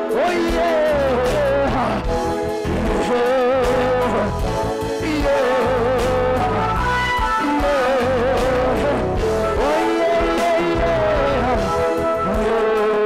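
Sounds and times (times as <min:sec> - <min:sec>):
live band playing: 0:00.0 - 0:13.0.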